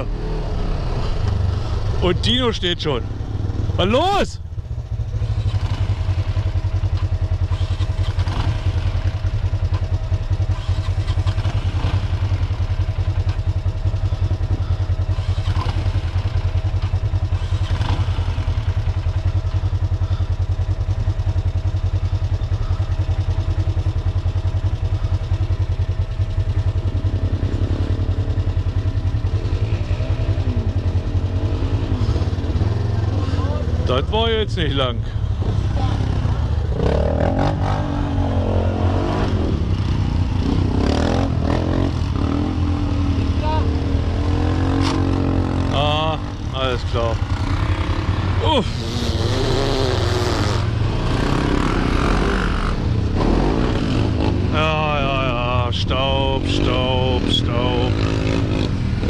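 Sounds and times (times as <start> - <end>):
buggy engine low rumble: 0.0 - 59.0.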